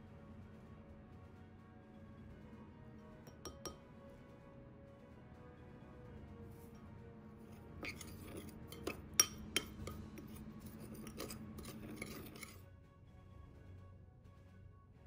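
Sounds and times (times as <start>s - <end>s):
faint background music: 0.0s - 15.0s
spoon clinking on glass: 3.3s - 3.8s, 7.8s - 12.6s
spoon scraping glass bowl: 7.4s - 12.6s.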